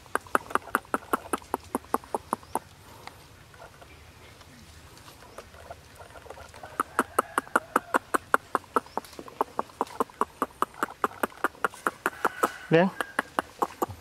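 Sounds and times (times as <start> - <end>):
rapid even clicking: 0.0 - 3.2, 5.5 - 14.0.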